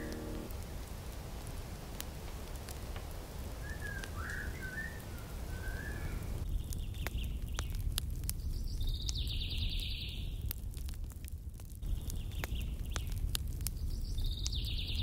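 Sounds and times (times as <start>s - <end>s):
steady low rumble: 0.0s - 0.6s
small birds chirping: 3.8s - 10.4s, 11.8s - 15.0s.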